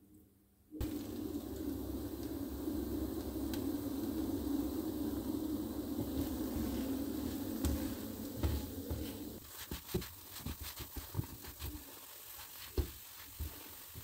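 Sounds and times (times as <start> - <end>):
bread sizzling in a pan: 0.8 - 14.0.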